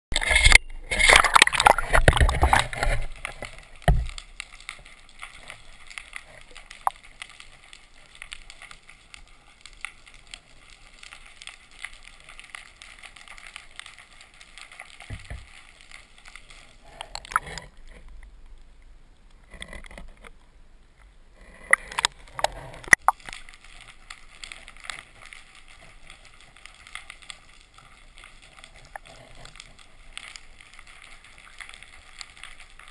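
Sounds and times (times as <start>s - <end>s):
muffled underwater water hiss: 0.8s - 19.5s.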